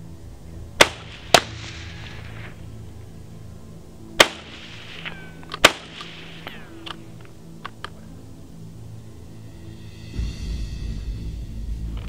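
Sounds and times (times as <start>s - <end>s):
rifle shots with echo: 0.8s - 2.6s, 4.2s - 6.8s.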